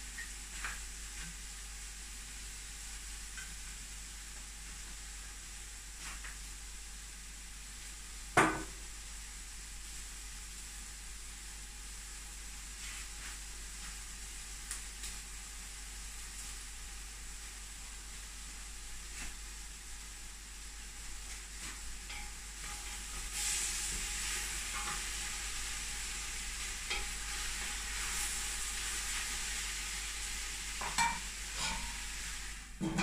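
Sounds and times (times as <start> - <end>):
oil sizzling in a pot: 0.0 - 33.0
metal pot clank: 30.8 - 32.0, 32.8 - 33.0.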